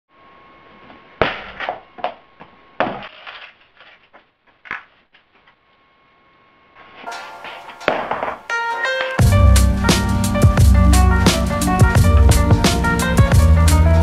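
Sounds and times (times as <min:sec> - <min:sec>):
skateboard knocking on hard floor: 0:07.9 - 0:08.4.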